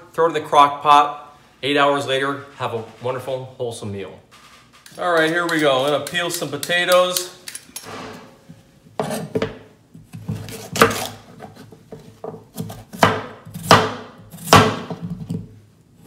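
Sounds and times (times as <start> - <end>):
knife slicing potatoes: 10.1 - 11.7, 12.5 - 15.2.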